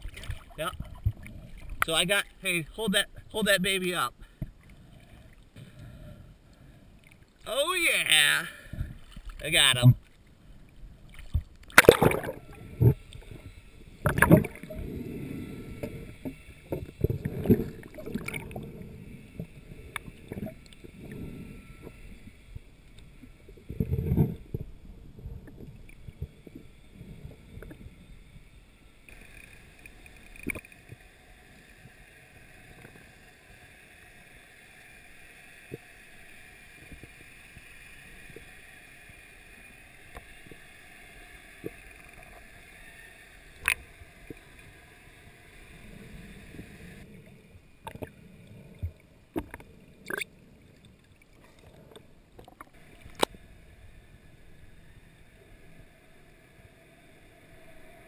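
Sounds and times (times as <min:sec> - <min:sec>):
water splashing and sloshing: 0:00.0 - 0:02.4, 0:07.0 - 0:28.0
faint steady high hiss: 0:00.0 - 0:58.0.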